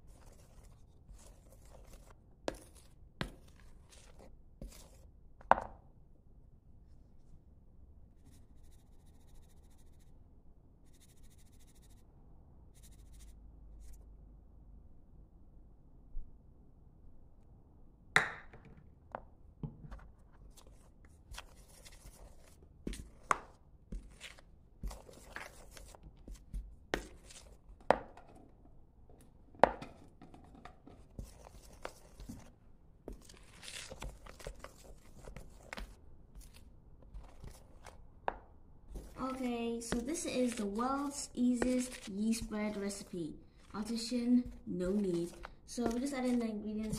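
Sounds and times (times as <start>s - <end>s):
spoon scraping through flour: 0.0s - 5.1s, 20.5s - 28.5s, 30.0s - 38.0s, 38.9s - 46.9s.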